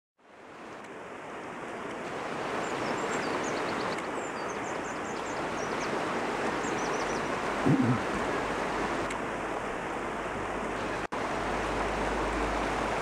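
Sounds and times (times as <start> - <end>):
river water rushing: 0.2 - 13.0.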